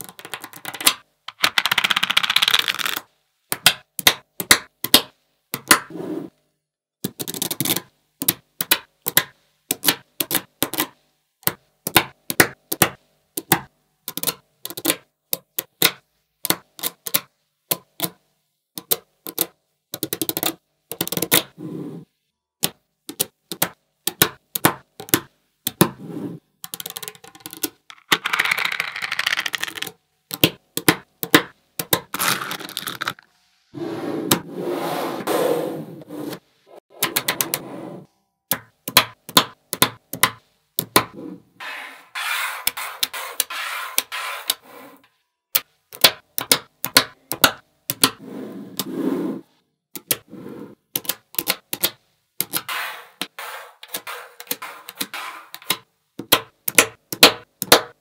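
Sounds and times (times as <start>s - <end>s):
magnetic balls clicking together: 0.0s - 5.0s, 26.6s - 33.2s
balls rattling together: 26.7s - 29.9s, 32.1s - 33.3s.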